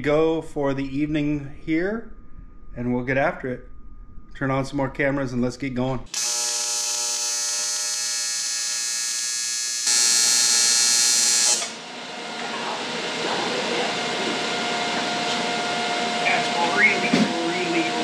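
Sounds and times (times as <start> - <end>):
welding arc buzzing: 6.1 - 16.2.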